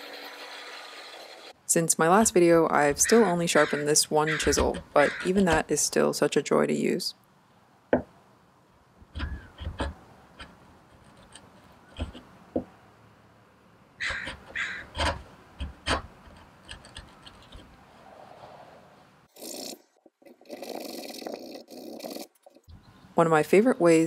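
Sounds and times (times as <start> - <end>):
chisel shaving wood: 9.2 - 12.3, 14.1 - 17.7.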